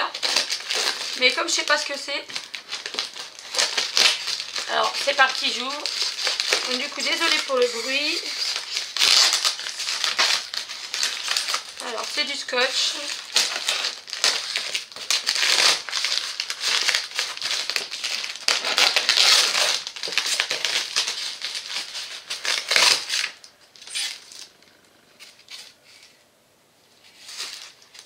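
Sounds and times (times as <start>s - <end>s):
cardboard packaging rustling: 0.0s - 26.2s, 26.9s - 28.0s
packing tape ripping: 0.0s - 26.2s, 27.0s - 28.0s.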